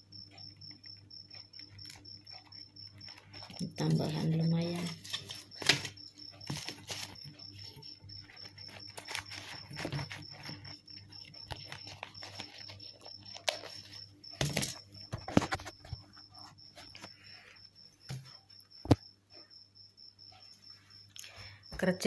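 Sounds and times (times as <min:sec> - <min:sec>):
paper banknotes rustling: 0:03.8 - 0:16.0.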